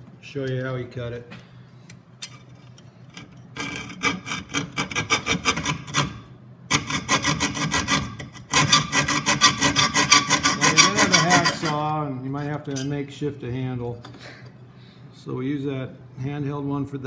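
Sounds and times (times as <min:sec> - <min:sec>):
hand saw cutting sheet metal: 0:03.2 - 0:11.9.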